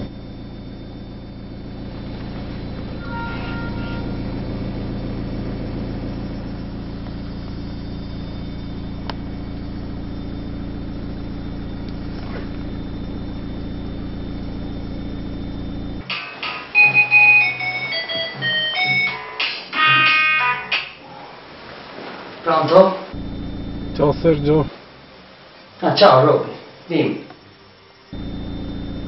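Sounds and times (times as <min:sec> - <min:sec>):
car engine and road noise: 0:00.0 - 0:16.1, 0:23.1 - 0:24.7, 0:28.1 - 0:29.0.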